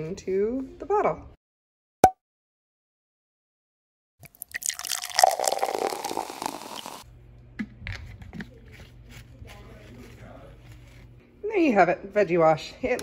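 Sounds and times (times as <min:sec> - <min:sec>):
liquid pouring through funnel: 0:04.2 - 0:07.1.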